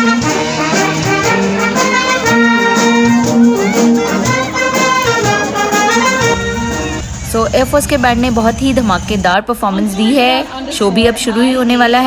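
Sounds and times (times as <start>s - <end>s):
band saxophones and brass: 0.0s - 8.9s
steady drum beat: 0.1s - 9.3s.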